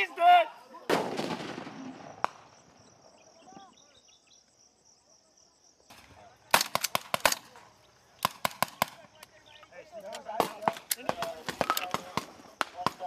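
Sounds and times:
gunshots echoing: 0.9s - 2.6s, 8.2s - 9.0s
insect chirring: 1.6s - 13.0s.

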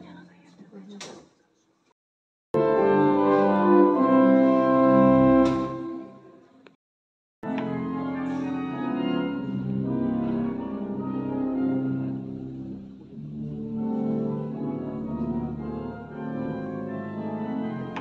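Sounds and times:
pipe organ chords echoing: 2.6s - 6.3s, 7.4s - 18.0s.

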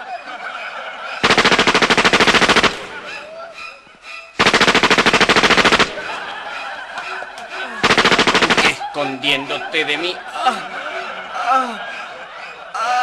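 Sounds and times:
machine-gun fire bursts: 1.2s - 3.1s, 4.4s - 6.3s, 7.8s - 8.9s.

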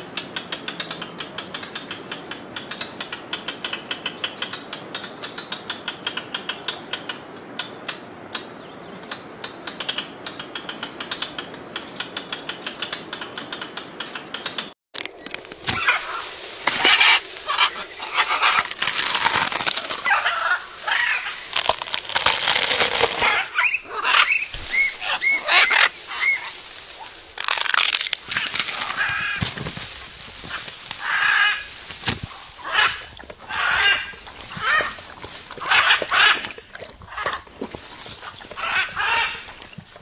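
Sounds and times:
macaws squawking: 15.6s - 39.8s.

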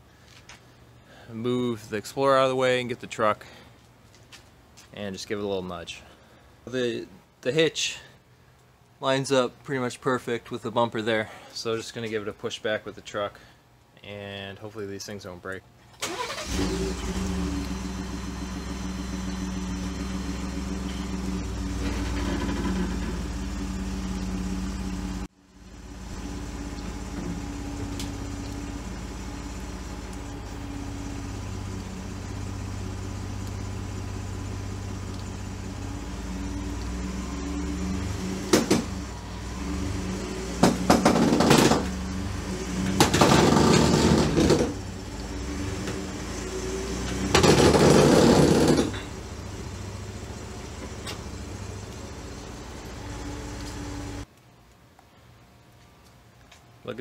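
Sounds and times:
loud rattling bursts: 40.6s - 41.9s, 43.0s - 44.8s, 47.2s - 49.1s.

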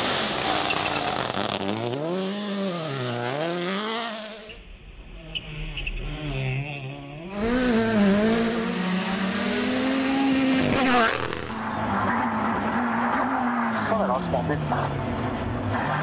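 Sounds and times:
rally car engines revving: 0.0s - 16.0s.

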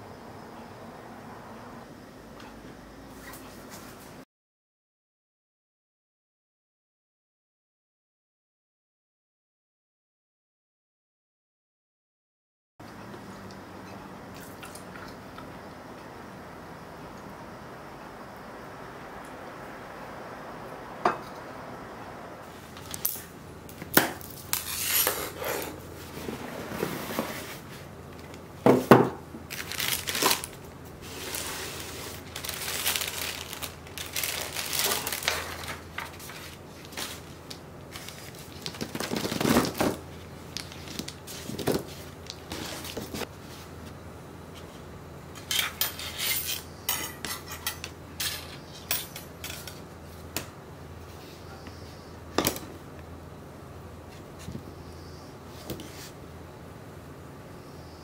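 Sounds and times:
scraping and rustling: 24.3s - 27.9s, 29.5s - 43.9s.

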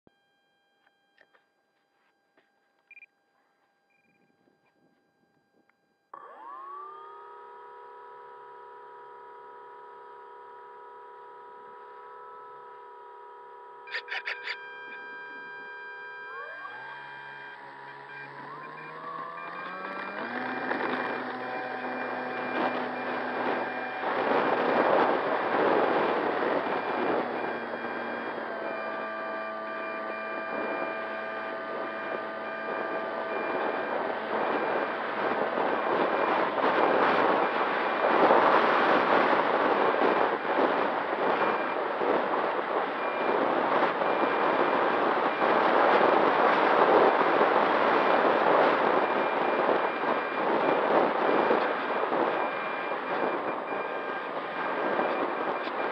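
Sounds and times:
electric motor and propeller whine: 0.1s - 55.9s
wind rushing over microphone: 16.4s - 55.9s.

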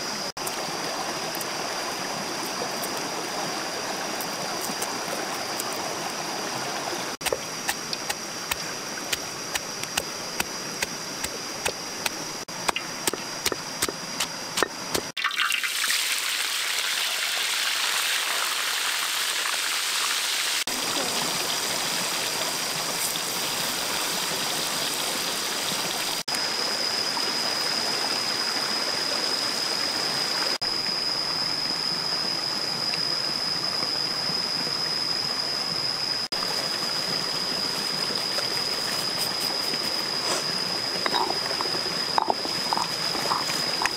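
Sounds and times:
creek running: 0.0s - 26.2s, 36.3s - 43.9s
water boiling in pot: 0.2s - 27.5s, 36.3s - 43.9s.

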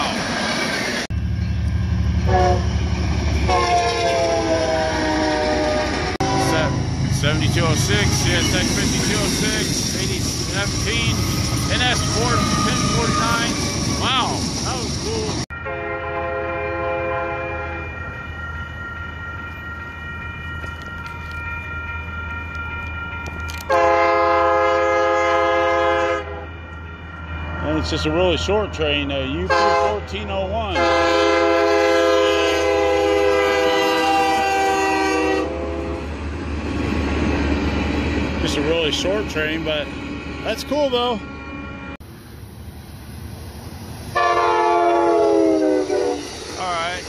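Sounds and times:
crossing warning bell ringing: 1.1s - 35.4s
train air horn blasts: 2.2s - 2.8s, 3.4s - 6.9s, 15.6s - 17.9s, 23.7s - 26.6s, 29.5s - 30.0s, 30.7s - 36.1s, 44.1s - 46.3s.

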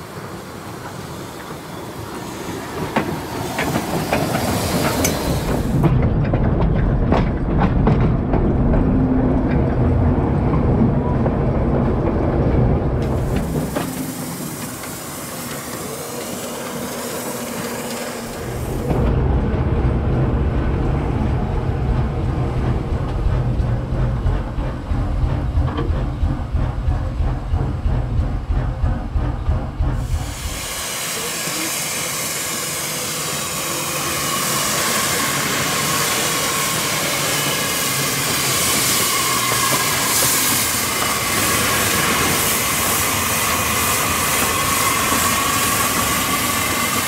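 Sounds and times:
steam locomotive rumbling: 0.0s - 47.0s
loud hiss of escaping steam: 13.1s - 18.8s, 30.0s - 47.0s.

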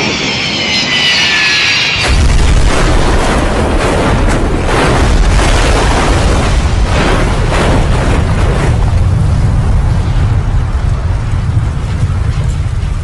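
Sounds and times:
deep rumbling roar of crash: 1.9s - 13.0s
crunching impacts: 2.0s - 10.6s.

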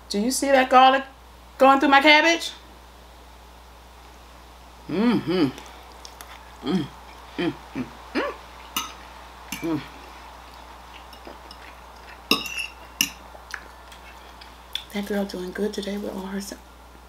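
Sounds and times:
woman humming while chewing: 4.9s - 5.8s, 6.5s - 8.5s, 9.6s - 10.1s
fork clicking on plate: 10.5s - 14.9s.

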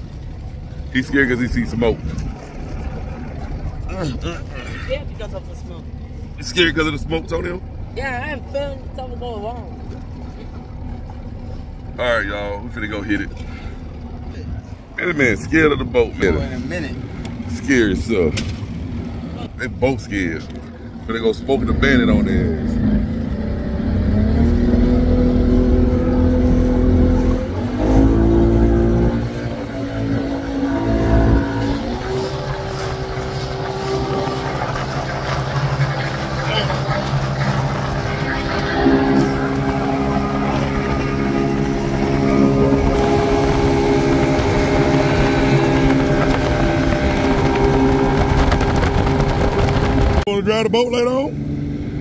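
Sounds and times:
motorboat engine under throttle: 0.0s - 52.0s
water rushing past hull: 0.0s - 52.0s
wind rumble on microphone: 20.4s - 50.3s.

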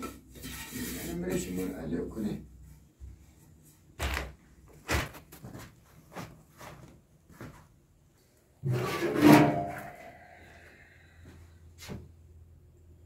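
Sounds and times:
metal tin scraped and clanking: 0.0s - 1.8s, 8.6s - 10.1s
knocks and shuffles: 2.6s - 8.4s, 11.8s - 12.3s.

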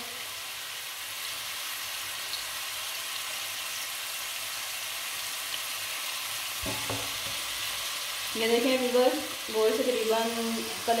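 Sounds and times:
meat sizzling in oil: 0.0s - 11.0s
wooden spoon knock: 6.6s - 7.4s.

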